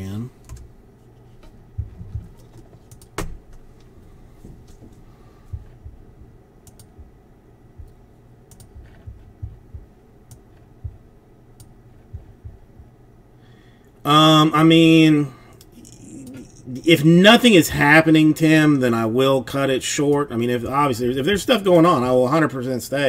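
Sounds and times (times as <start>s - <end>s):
computer keyboard keystrokes: 1.8s - 3.3s, 6.6s - 7.0s, 7.8s - 9.3s
mouse clicks: 6.6s - 7.0s, 8.5s - 9.1s.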